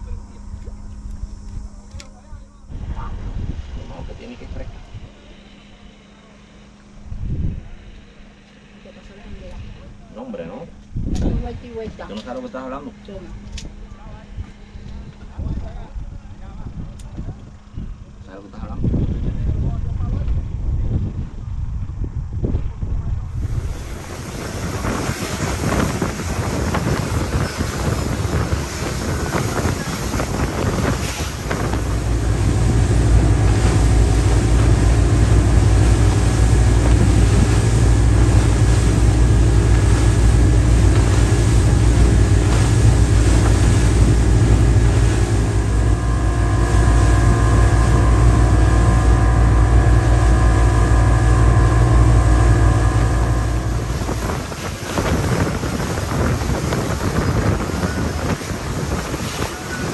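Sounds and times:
wind buffeting microphone: 0.0 - 5.2, 7.0 - 7.8, 10.8 - 12.1, 13.3 - 59.9
motorboat engine drone: 0.0 - 59.9
rush of spray and wake: 23.2 - 59.9.

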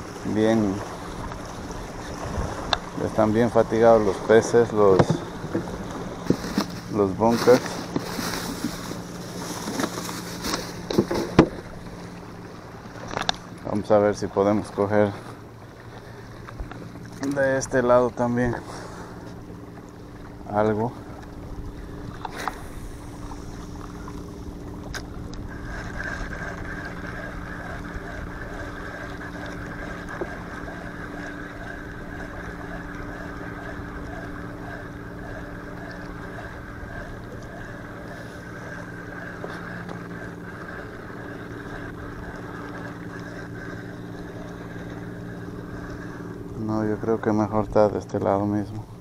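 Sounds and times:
low motor drone: 0.0 - 49.0
fishing reel whirring: 21.2 - 48.0.

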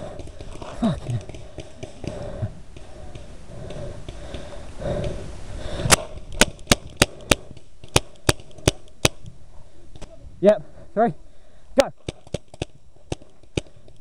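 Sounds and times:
paintball marker shots: 5.9 - 9.3, 12.0 - 13.9.

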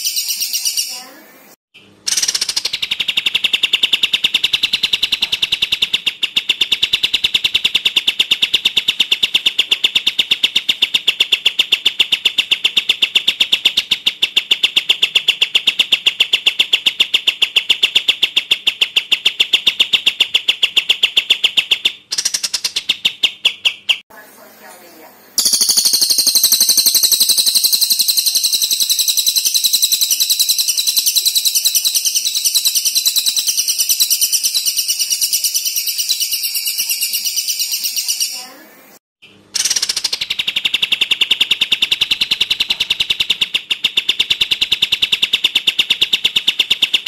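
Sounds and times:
songbird rapid rattle call: 25.4 - 38.5.

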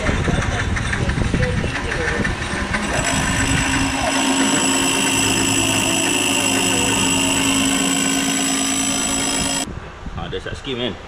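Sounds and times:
metal lathe whining: 1.7 - 9.7.

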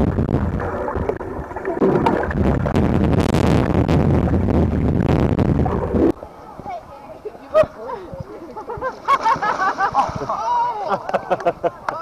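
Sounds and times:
crackling air bubbles: 0.0 - 6.3
underwater churning water rumble: 0.0 - 6.4.

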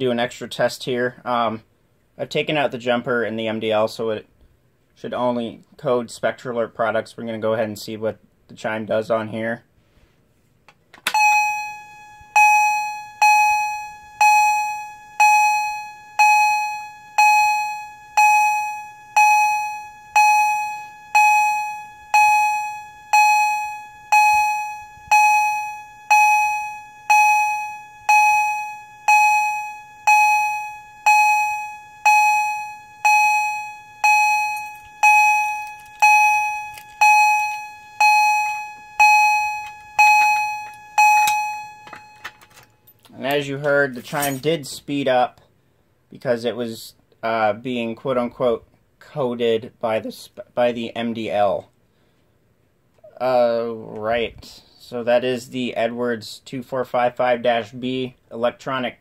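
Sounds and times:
electronic chime bell-like tone: 11.1 - 42.7.

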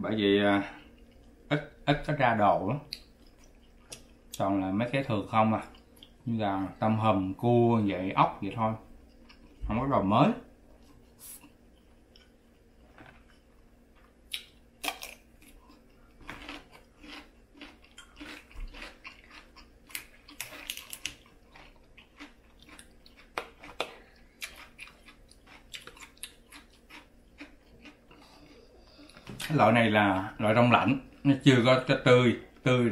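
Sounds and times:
close-up chewing: 10.8 - 29.5.

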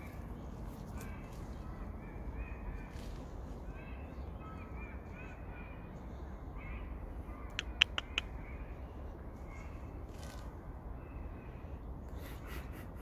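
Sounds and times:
crows cawing faintly: 0.0 - 10.4.

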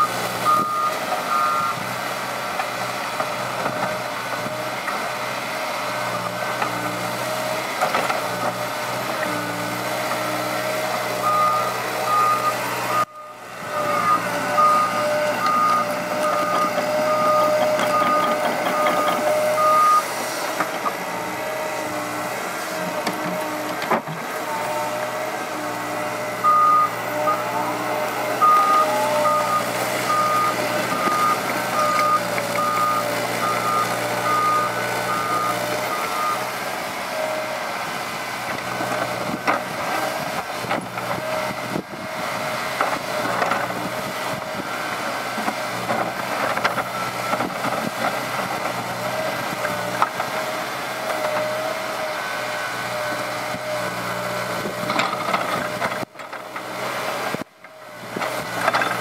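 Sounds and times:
excavator diesel engine: 0.0 - 59.0
travel alarm beeping: 11.2 - 20.1, 26.4 - 27.6, 28.4 - 36.4
excavator digging knocks: 15.4 - 19.8.

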